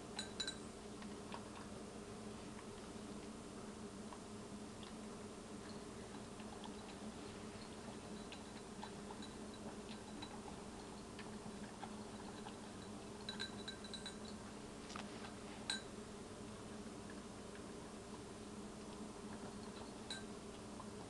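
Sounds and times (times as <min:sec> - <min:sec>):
kibble clinking against bowl: 0:00.2 - 0:00.7, 0:05.6 - 0:14.4, 0:15.6 - 0:15.9, 0:19.5 - 0:20.3.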